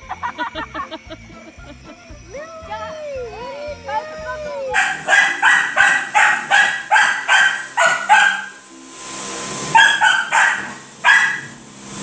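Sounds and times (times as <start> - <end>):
pet yapping: 4.8 - 8.6, 9.7 - 11.6.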